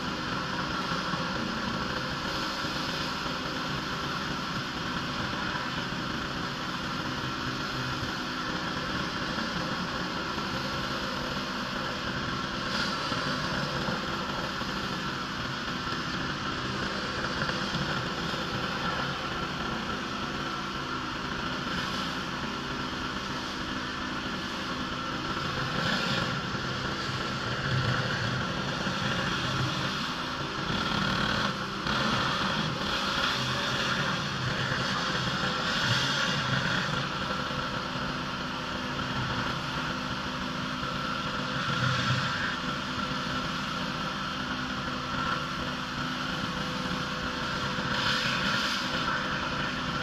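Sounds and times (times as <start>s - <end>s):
pressure washer engine drone: 0.0s - 50.0s
high-pressure water spray hiss: 12.6s - 14.9s, 21.7s - 22.3s, 24.4s - 38.0s, 45.4s - 49.8s.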